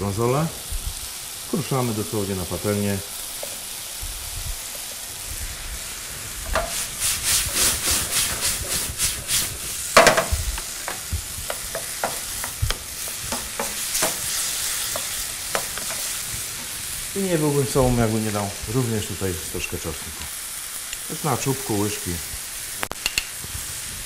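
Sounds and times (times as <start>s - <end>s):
food sizzling in a frying pan: 0.0s - 24.0s
spatula scraping a pan: 6.4s - 16.8s
spatula tapping a pan: 6.5s - 6.9s, 10.0s - 16.2s
loud knock: 10.0s - 10.5s.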